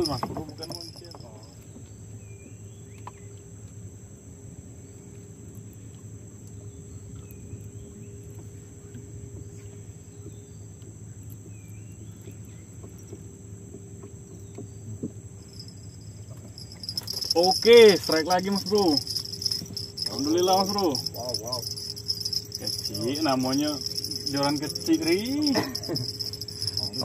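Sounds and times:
high-pitched insect drone: 0:00.0 - 0:01.6, 0:15.4 - 0:27.0
low steady hum: 0:00.0 - 0:27.0.

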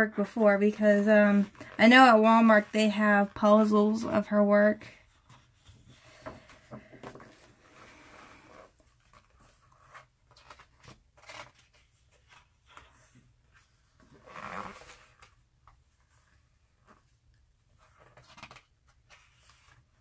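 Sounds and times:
paper pages rustling: 0:08.7 - 0:14.1, 0:14.8 - 0:20.0.

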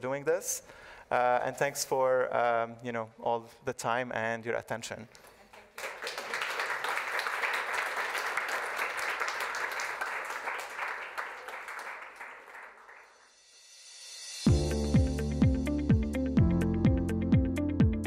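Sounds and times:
audience applauding: 0:05.6 - 0:13.2
electronic music with beat: 0:14.5 - 0:18.0.

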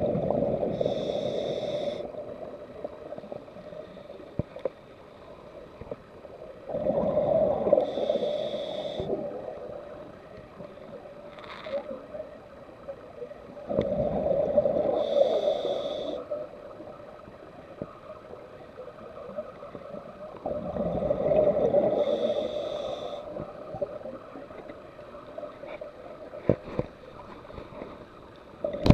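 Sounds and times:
diver breathing through regulator: 0:00.6 - 0:02.2, 0:06.9 - 0:09.3, 0:14.2 - 0:16.3, 0:21.1 - 0:23.5.

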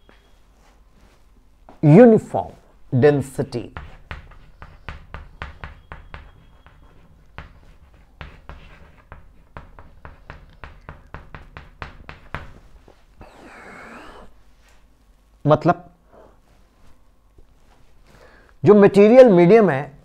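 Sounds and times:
chalk writing on blackboard: 0:03.5 - 0:14.3.

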